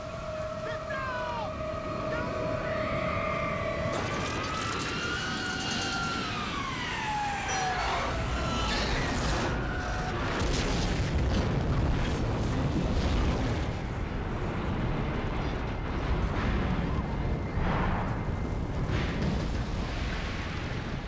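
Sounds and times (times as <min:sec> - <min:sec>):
jet engine whine falling in pitch: 0:00.0 - 0:10.4
deep explosion rumble: 0:09.3 - 0:21.0.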